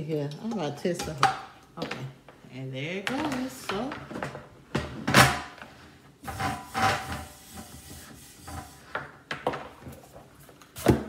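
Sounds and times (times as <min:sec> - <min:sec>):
grill plate scraping on base: 0:06.2 - 0:09.0.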